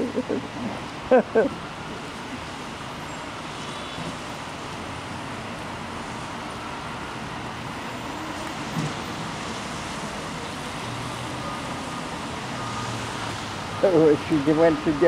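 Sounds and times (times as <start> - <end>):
passing cars hum: 0.0 - 15.0
urban background noise: 0.0 - 15.0.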